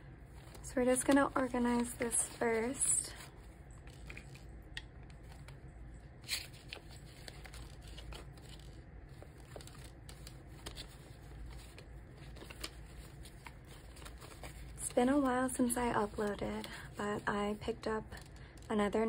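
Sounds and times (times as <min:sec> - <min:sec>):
paper banknotes rustling: 0:06.2 - 0:17.3.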